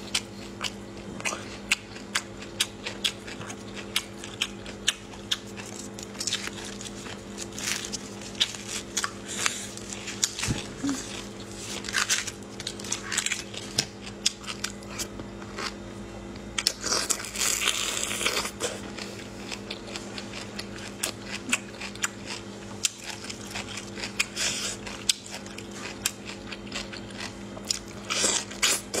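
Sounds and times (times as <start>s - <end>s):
steady low hum: 0.0s - 29.0s
husks tearing and crackling: 5.5s - 13.8s.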